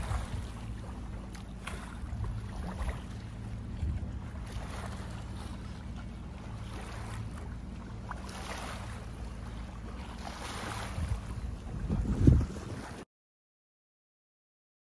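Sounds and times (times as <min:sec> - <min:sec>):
wind and water hiss: 0:00.0 - 0:13.0
boat engine low hum: 0:00.0 - 0:13.1.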